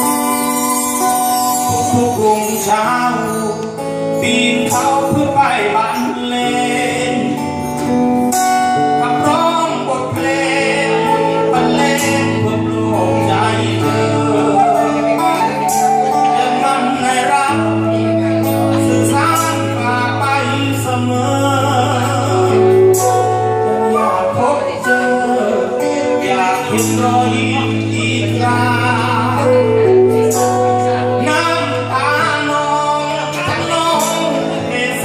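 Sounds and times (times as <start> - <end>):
flute melody: 0.0 - 3.7, 10.3 - 20.0, 21.1 - 33.0
strummed acoustic guitar: 0.0 - 35.0.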